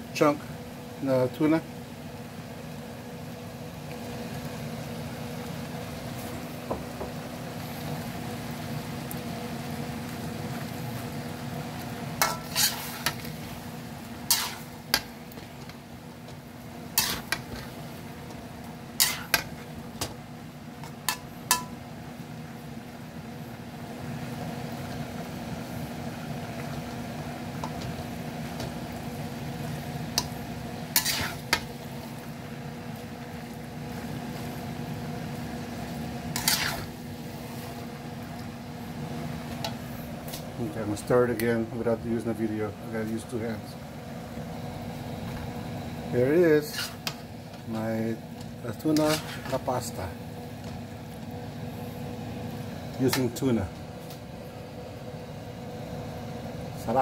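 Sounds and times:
steady low hum: 0.0s - 57.0s
metal spatula scraping frying pan: 12.2s - 13.3s, 14.2s - 15.0s, 16.9s - 17.7s, 19.0s - 19.5s, 30.9s - 31.6s, 36.3s - 36.9s, 46.6s - 47.2s, 49.0s - 49.6s.

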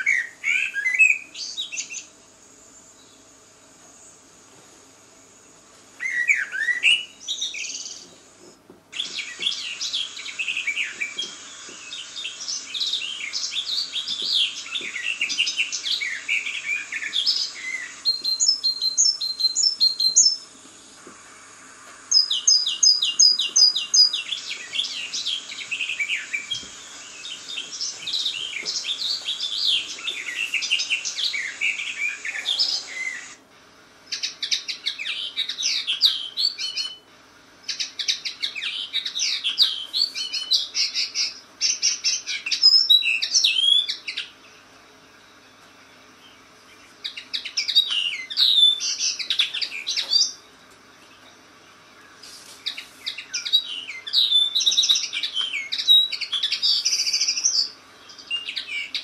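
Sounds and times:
songbirds singing and chirping: 0.0s - 4.2s, 5.4s - 21.2s, 21.9s - 33.4s, 34.0s - 59.0s
bird high evenly spaced notes: 22.1s - 33.4s.

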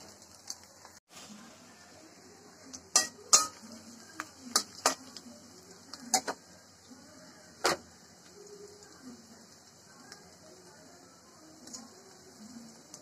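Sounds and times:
onions frying in oil: 0.0s - 13.0s
metal spatula scraping a pan: 2.9s - 5.2s.

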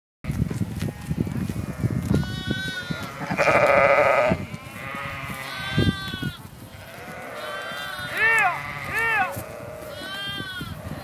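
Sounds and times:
sheep bleating: 1.0s - 11.0s.

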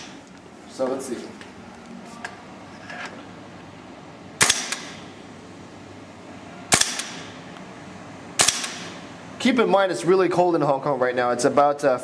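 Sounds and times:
airsoft rifle shots: 4.4s - 5.0s, 6.7s - 7.4s, 8.4s - 9.0s.

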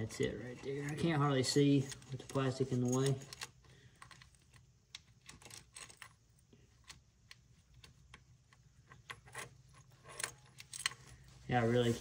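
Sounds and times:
low steady hum: 0.0s - 12.0s
small metallic clicks: 1.8s - 11.1s.

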